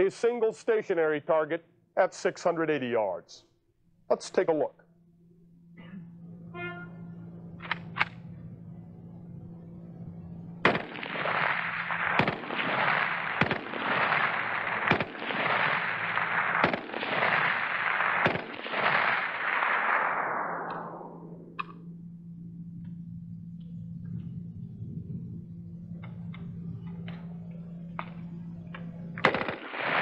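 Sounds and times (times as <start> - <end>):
rifle shots: 10.6 - 21.7, 29.2 - 30.0
sharp cracks: 10.6 - 21.9, 29.2 - 30.0.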